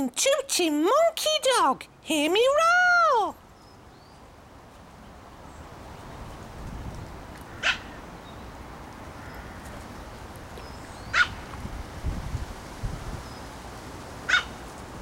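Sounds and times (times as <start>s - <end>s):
small dog yapping: 7.6s - 7.9s, 11.1s - 11.4s, 14.3s - 14.5s.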